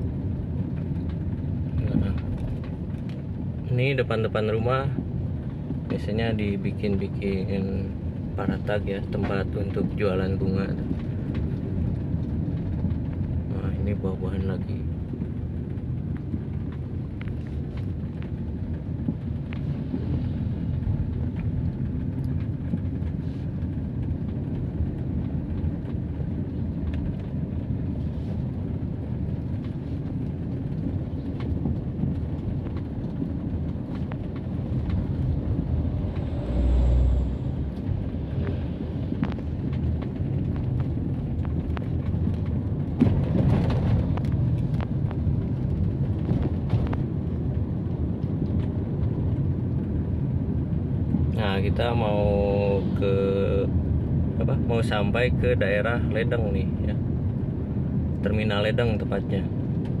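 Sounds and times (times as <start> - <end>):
car engine and tyre rumble: 0.0 - 60.0
rush of noise: 30.9 - 48.2.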